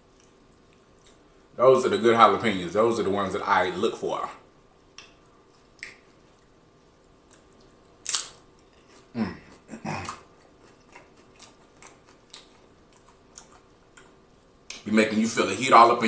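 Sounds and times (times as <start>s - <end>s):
man chewing crunchy chips: 5.5s - 14.3s.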